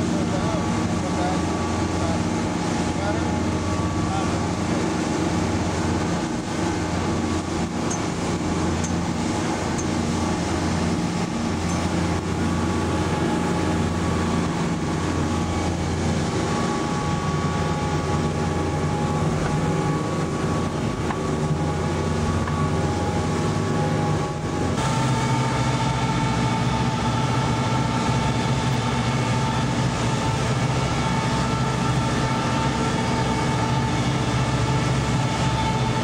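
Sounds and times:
boat engine droning: 0:00.0 - 0:36.0
rush of wake and spray: 0:00.0 - 0:36.0.

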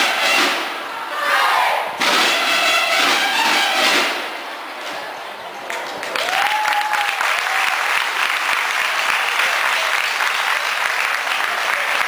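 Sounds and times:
audience applauding: 0:05.6 - 0:12.0.

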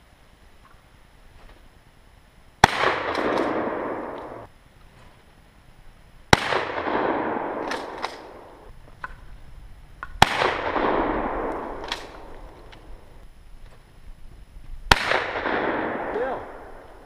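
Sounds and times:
shotgun shots echoing: 0:02.6 - 0:04.5, 0:06.3 - 0:08.7, 0:10.2 - 0:13.1, 0:14.9 - 0:17.0.

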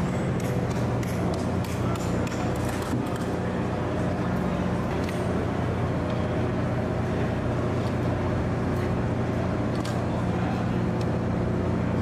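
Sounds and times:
ship machinery drone: 0:00.0 - 0:12.0.

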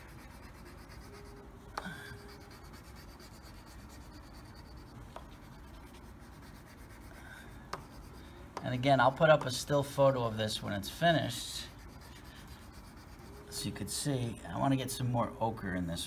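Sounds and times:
crayon scribbling on paper: 0:00.0 - 0:08.3, 0:11.1 - 0:14.0.

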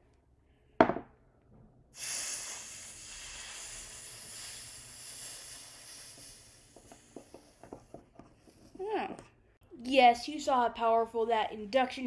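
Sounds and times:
hot metal hissing in water: 0:02.0 - 0:07.7.

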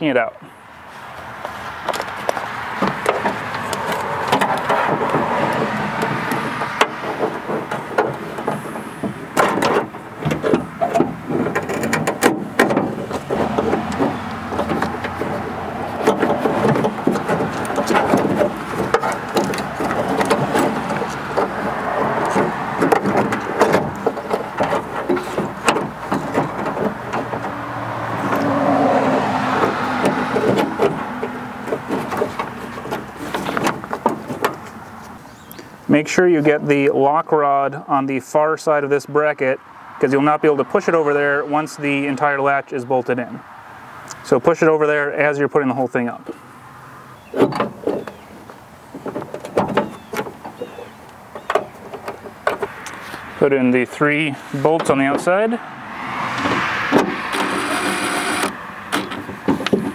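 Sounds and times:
continuous noise: 0:00.0 - 0:59.9
metal parts clicking and knocking: 0:02.8 - 0:27.5.

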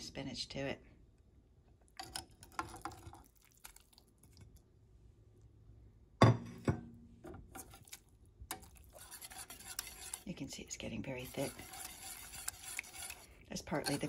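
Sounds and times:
spinach scraped from a plate: 0:07.6 - 0:14.0
kitchenware clatter: 0:11.3 - 0:14.0.

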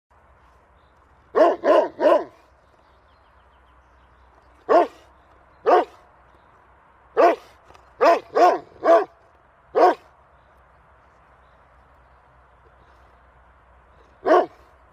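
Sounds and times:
dog barking: 0:01.3 - 0:02.4, 0:04.7 - 0:05.0, 0:05.6 - 0:06.0, 0:07.2 - 0:09.2, 0:09.8 - 0:10.1, 0:14.2 - 0:14.6.

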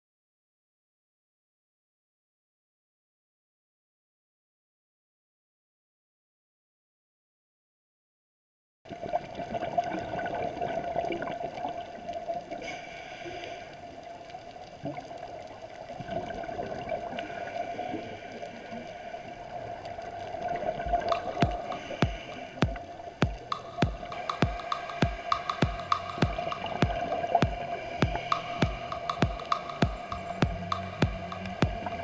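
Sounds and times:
underwater water noise and bubbling: 0:08.9 - 0:32.0
steady hum: 0:20.9 - 0:32.0
sharp knocks: 0:21.2 - 0:31.8.

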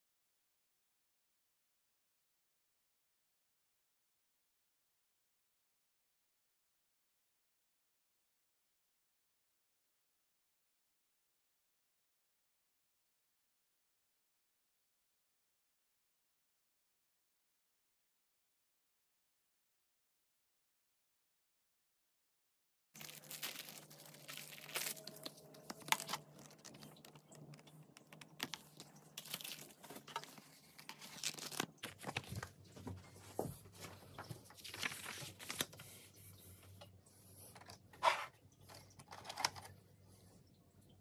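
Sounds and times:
paper rustling: 0:23.0 - 0:36.3.

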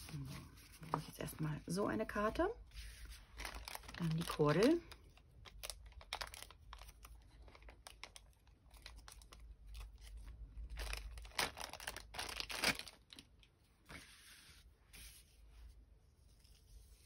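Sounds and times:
plastic wrapper crinkling: 0:03.2 - 0:13.5.

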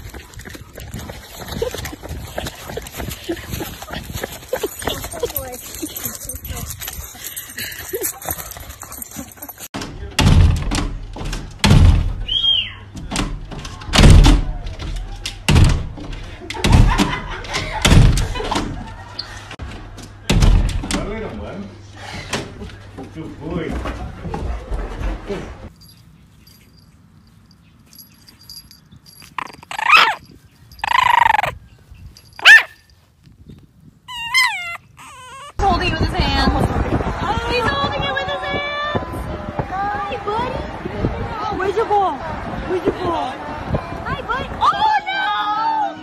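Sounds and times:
glass sliding door thumping and rattling: 0:09.8 - 0:12.2, 0:13.0 - 0:18.8, 0:20.3 - 0:21.2
puppy yipping and howling: 0:29.4 - 0:31.6, 0:32.4 - 0:32.8, 0:34.1 - 0:35.6.

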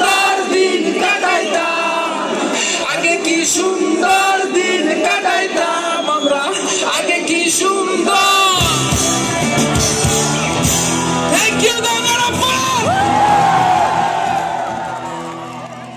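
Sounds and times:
drums: 0:08.4 - 0:15.9
guitars: 0:08.5 - 0:15.0
bass: 0:08.5 - 0:15.9.

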